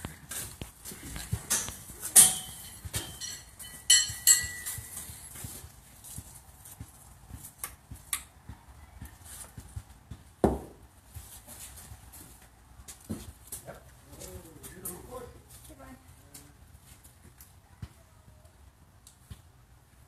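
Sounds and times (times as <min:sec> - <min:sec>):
horseshoes clanking: 0:00.0 - 0:08.3.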